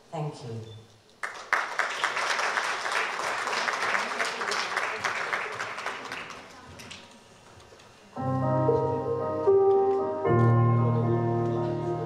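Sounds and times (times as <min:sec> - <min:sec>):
audience applauding: 0:01.2 - 0:07.2.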